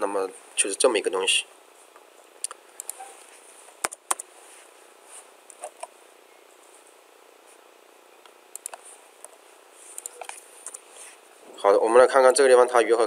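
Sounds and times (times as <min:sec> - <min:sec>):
computer keyboard and mouse clicks: 0:02.4 - 0:03.0, 0:03.8 - 0:04.3, 0:08.5 - 0:08.8, 0:10.0 - 0:10.8.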